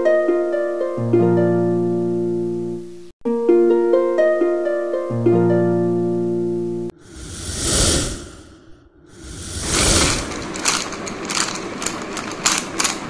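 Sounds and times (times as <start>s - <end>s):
plucked harp-like music: 0.0s - 6.9s
rushing noise: 7.0s - 13.0s.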